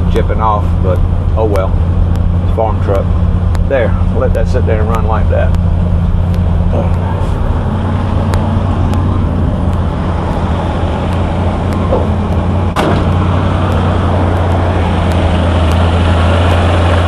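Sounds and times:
truck engine idling: 0.0 - 17.0
sharp knock: 11.8 - 13.4.

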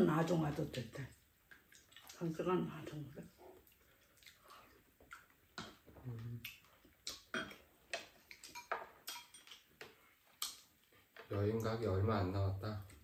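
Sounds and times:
utensils clinking on ceramic bowls: 8.4 - 9.7.

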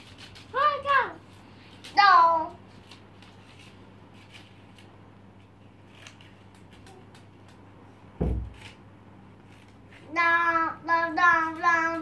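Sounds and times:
scissors snipping paper: 0.0 - 1.1, 1.7 - 7.6
dull thump: 8.2 - 8.6.

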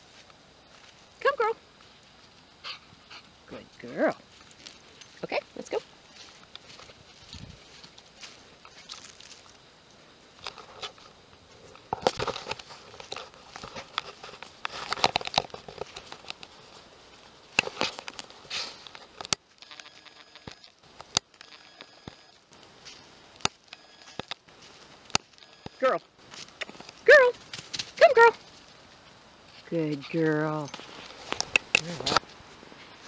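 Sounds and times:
footsteps crunching dry leaves: 3.7 - 9.6, 24.4 - 25.5
twigs snapping: 31.3 - 32.3.

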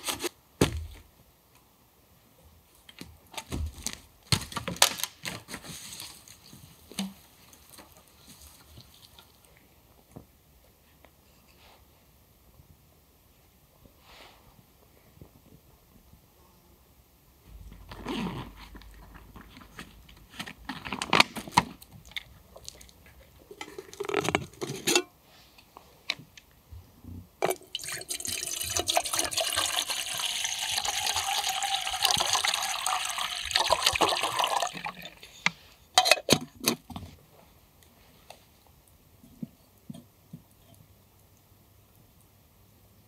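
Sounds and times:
water pouring into metal kettle: 27.5 - 35.3.

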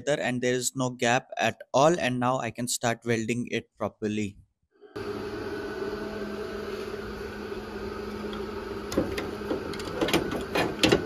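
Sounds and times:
electrical hum: 4.8 - 11.0.

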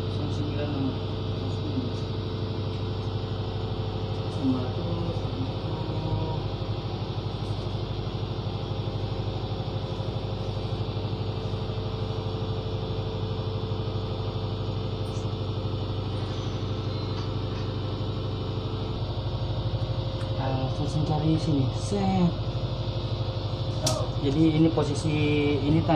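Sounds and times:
boat engine running: 0.0 - 25.9.

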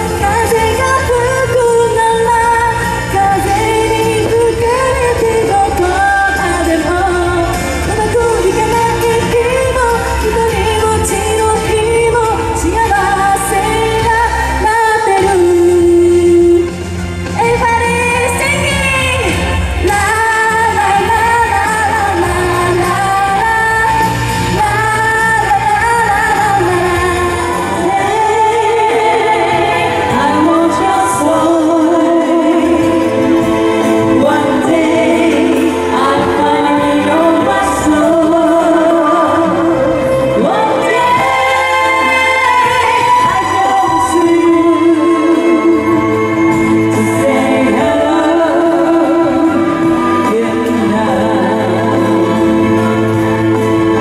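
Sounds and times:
woman singing into a microphone: 0.0 - 54.0.

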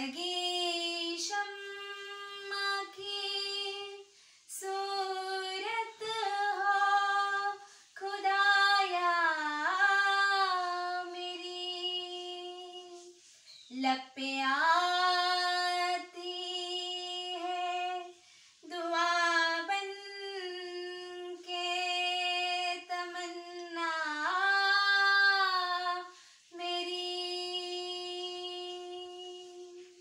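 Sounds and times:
woman singing unaccompanied: 0.0 - 30.0
singer breathing: 26.1 - 26.5.

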